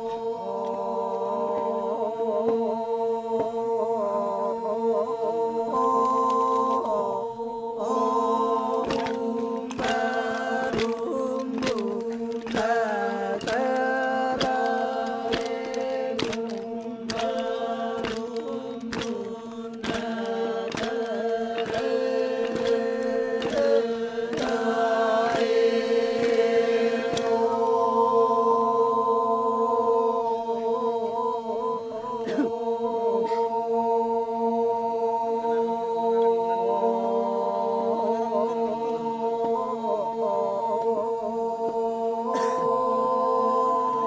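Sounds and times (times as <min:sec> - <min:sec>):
men's chorus chanting: 0:00.0 - 0:44.0
sharp knocks keeping a beat: 0:08.6 - 0:27.5.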